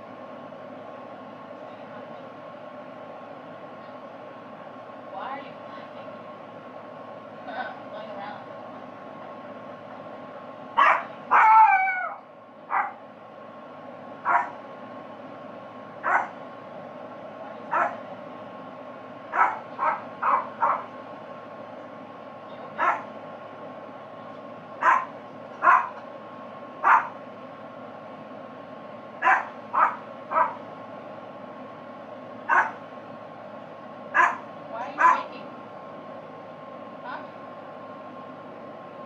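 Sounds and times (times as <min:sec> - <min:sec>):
dog barking: 0:10.8 - 0:13.0, 0:14.2 - 0:14.6, 0:16.0 - 0:16.4, 0:17.7 - 0:18.0, 0:19.3 - 0:20.9, 0:22.8 - 0:23.1, 0:24.8 - 0:26.0, 0:26.8 - 0:27.2, 0:29.2 - 0:30.6, 0:32.5 - 0:32.8, 0:34.1 - 0:35.3.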